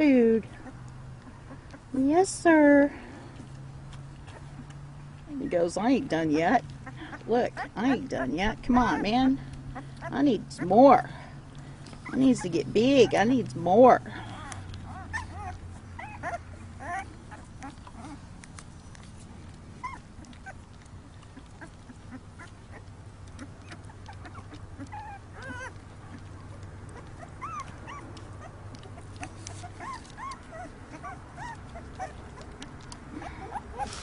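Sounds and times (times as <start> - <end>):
puppies eating kibble from metal pan: 6.4 - 34.0
puppy whimpers and squeaks: 12.0 - 13.2, 14.2 - 34.0.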